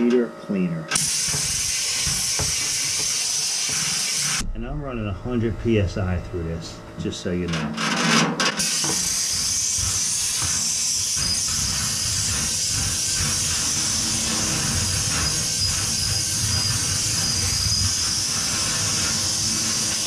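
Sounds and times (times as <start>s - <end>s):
compressed air hissing: 0.9s - 4.4s, 8.7s - 20.0s
low rumble: 4.4s - 7.1s.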